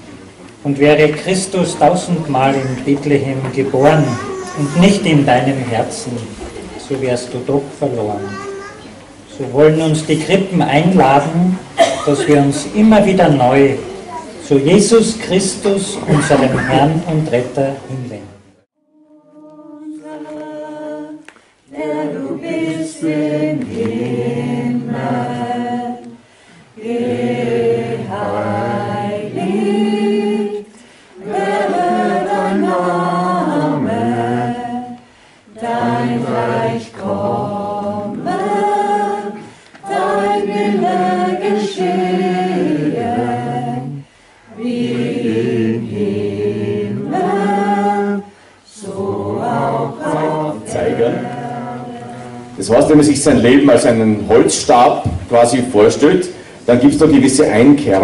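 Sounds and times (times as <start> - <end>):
vocal group singing a cappella: 19.0 - 58.0.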